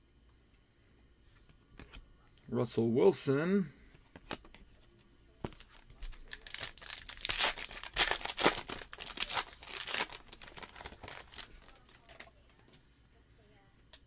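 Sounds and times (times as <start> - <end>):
foil wrapper tearing and crinkling: 5.6 - 12.3.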